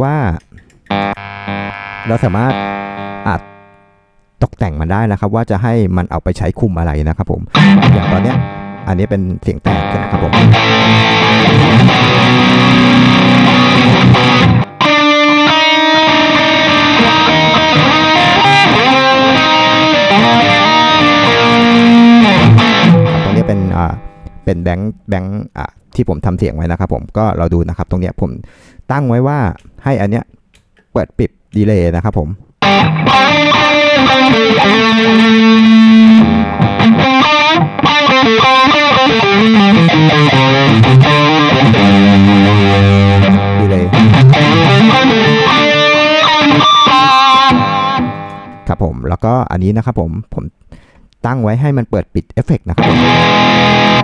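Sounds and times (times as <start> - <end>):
electric guitar lead line: 0.8 - 4.2, 7.5 - 24.5, 32.6 - 48.7, 52.8 - 54.0
distorted electric guitar chords: 0.8 - 4.3, 7.5 - 24.5, 32.6 - 48.7, 52.8 - 54.0.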